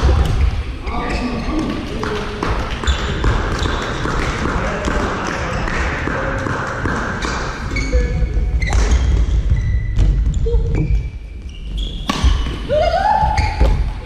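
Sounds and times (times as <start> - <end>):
shoes squeaking on court floor: 0.8 - 4.3, 7.2 - 14.0.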